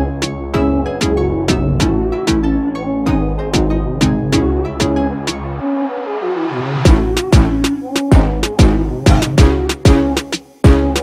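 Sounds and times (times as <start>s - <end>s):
electronic music: 0.0s - 11.0s
heavy kick drum: 6.9s - 11.0s.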